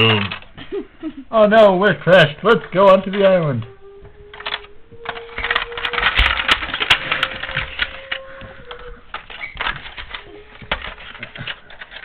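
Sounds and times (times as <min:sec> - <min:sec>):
plastic toy pieces clicking: 0:00.0 - 0:00.5, 0:04.3 - 0:12.0.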